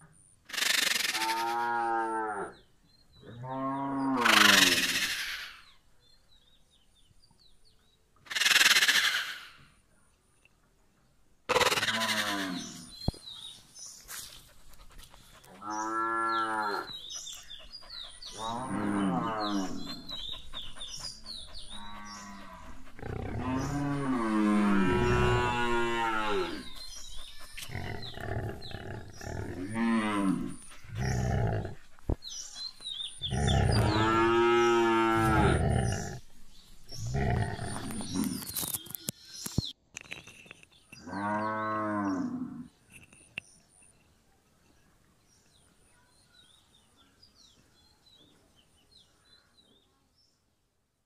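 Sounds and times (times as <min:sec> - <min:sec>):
cattle mooing: 0:21.7 - 0:26.7.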